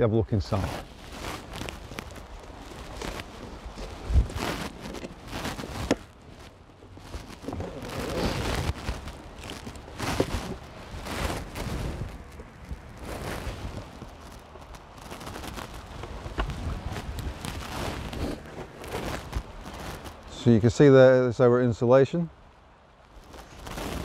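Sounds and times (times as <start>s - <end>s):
strap buckle clicks and scrapes: 2.8s - 6.1s.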